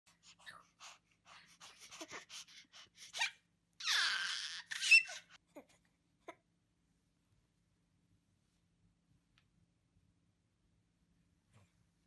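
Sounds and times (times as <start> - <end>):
baby laughing: 1.6 - 6.4
baby squealing: 3.0 - 5.4.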